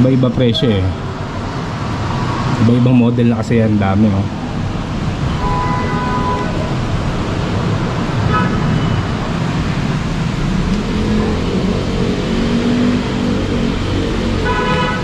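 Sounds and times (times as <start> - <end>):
traffic rumble: 0.0 - 15.0
engine rising in pitch: 10.3 - 14.5.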